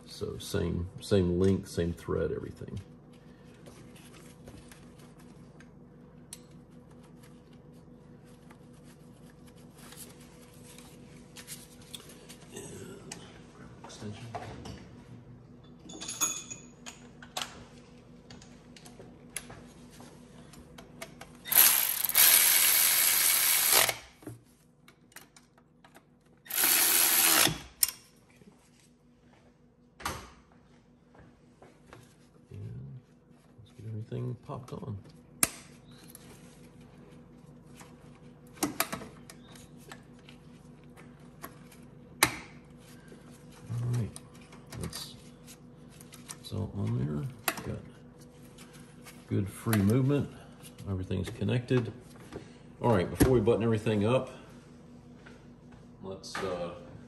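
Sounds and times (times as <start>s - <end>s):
power tool driving bolts: 21.5s - 24.1s, 26.5s - 27.9s.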